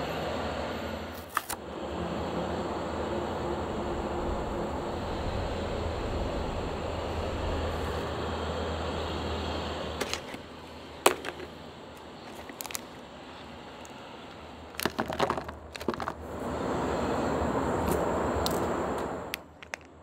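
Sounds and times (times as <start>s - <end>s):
steady rushing noise: 1.6s - 20.0s
plastic packaging crinkling: 12.2s - 14.0s, 14.7s - 16.2s.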